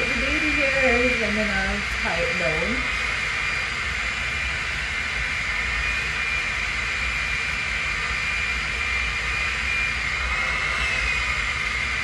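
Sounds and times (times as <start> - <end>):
hair dryer running: 0.0 - 12.0.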